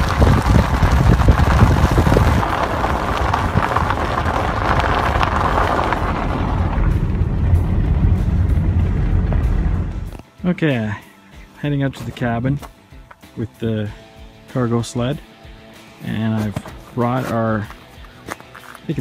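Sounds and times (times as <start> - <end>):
wind rushing over roof ladder: 0.0 - 10.2
car road and engine rumble: 0.0 - 10.3.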